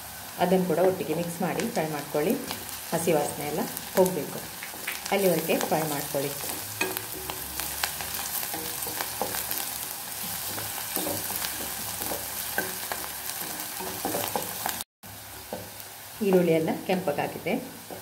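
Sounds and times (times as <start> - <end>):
onions sizzling in oil: 0.0 - 18.0
spatula scraping pan: 4.6 - 14.8.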